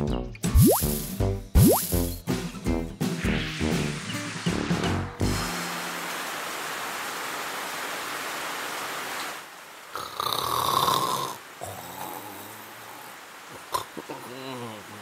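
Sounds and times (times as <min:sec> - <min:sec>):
rain hissing: 0:03.1 - 0:15.0
cartoon character snoring: 0:10.0 - 0:12.6.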